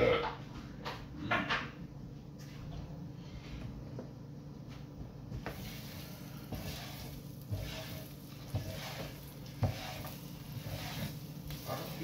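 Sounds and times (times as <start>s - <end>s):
spatula scraping and knocking griddle: 5.3s - 12.0s
grease sizzling on griddle: 5.5s - 12.0s.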